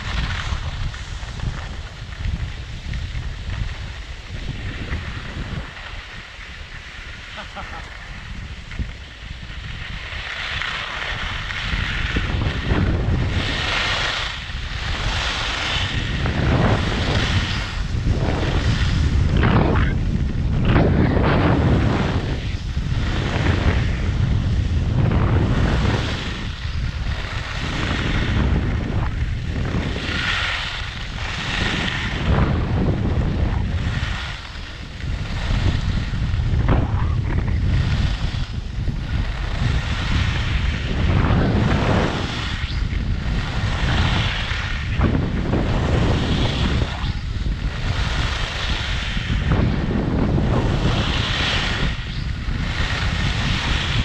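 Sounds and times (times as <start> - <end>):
skis hissing on snow: 0.0 - 19.4, 29.0 - 36.4, 37.0 - 44.9, 45.5 - 49.8
wind rushing over microphone: 0.0 - 54.0.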